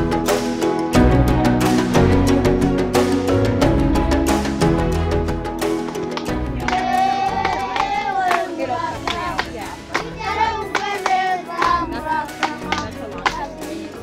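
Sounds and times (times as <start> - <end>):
hand claps: 5.8 - 14.0
children singing: 6.6 - 14.0.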